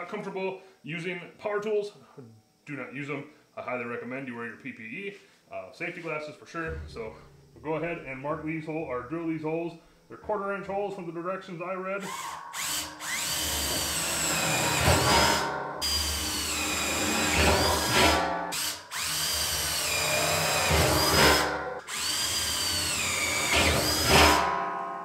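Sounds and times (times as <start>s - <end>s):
cordless drill boring through metal: 12.0s - 24.4s.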